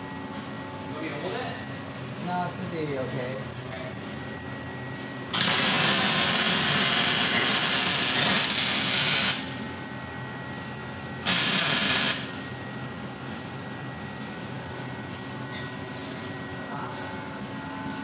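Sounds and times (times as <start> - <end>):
welding arc hissing: 5.3 - 9.5, 11.2 - 12.3.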